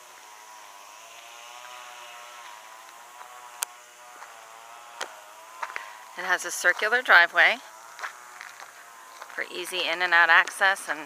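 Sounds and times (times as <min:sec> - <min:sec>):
mechanical hum: 0:00.0 - 0:11.0.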